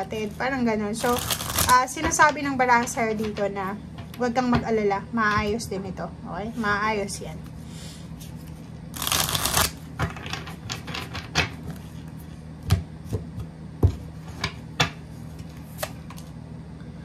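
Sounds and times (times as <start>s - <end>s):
cards being shuffled: 1.0s - 1.8s, 8.4s - 9.8s.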